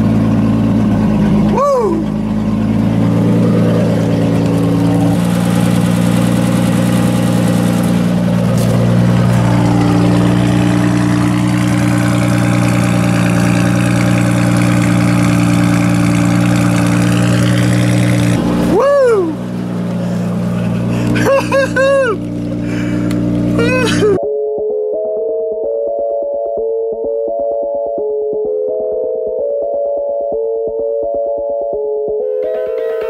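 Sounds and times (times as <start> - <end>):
car engine idling: 0.0 - 24.2.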